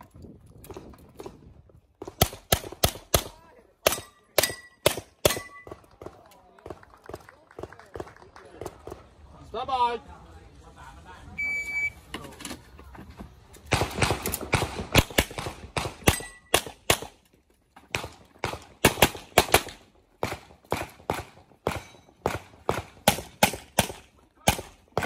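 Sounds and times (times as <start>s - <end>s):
rapid pistol shots: 2.0s - 5.5s, 13.7s - 17.2s, 17.9s - 25.0s.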